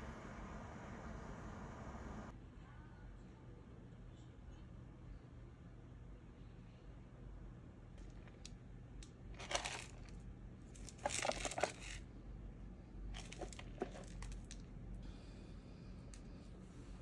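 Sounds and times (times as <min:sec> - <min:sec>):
plastic cup rustling: 0:09.4 - 0:10.1, 0:10.8 - 0:12.0, 0:13.2 - 0:14.5.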